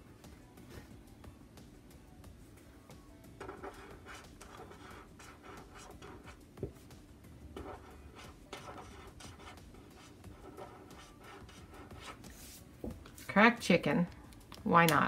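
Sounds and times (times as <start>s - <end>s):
pen tip scratching on paper: 3.4s - 6.4s, 7.6s - 12.6s.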